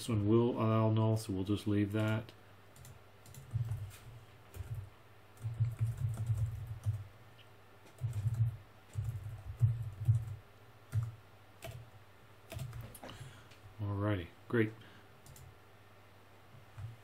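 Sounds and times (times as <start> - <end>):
computer keyboard typing: 2.8 - 3.9, 4.5 - 7.0, 7.9 - 11.8, 12.5 - 13.0, 15.2 - 15.5.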